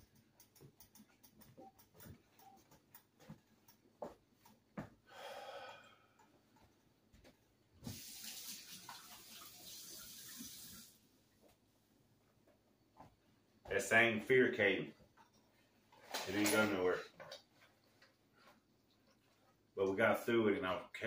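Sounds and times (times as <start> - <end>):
faucet running: 7.8 - 11.0.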